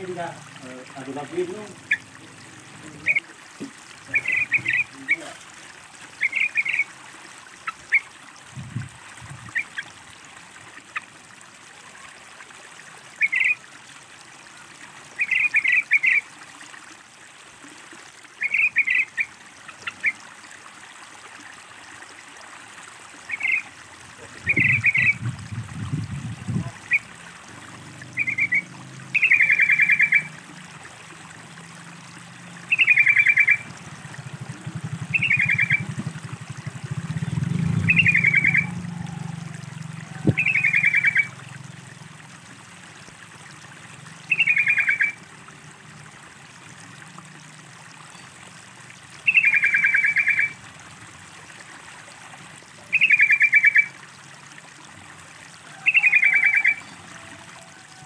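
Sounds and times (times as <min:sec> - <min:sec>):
trickling water: 0:00.0 - 0:58.0
bird chattering call: 0:02.9 - 0:03.3, 0:04.1 - 0:05.3, 0:24.2 - 0:25.2, 0:28.2 - 0:30.3, 0:32.7 - 0:33.7, 0:35.1 - 0:35.9, 0:37.8 - 0:39.2, 0:40.1 - 0:41.3, 0:44.3 - 0:45.2, 0:49.3 - 0:50.6, 0:55.8 - 0:56.9.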